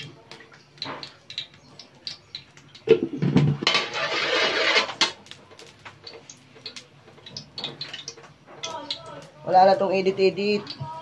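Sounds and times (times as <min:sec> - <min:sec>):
ladle scraping pan: 0:03.4 - 0:05.3.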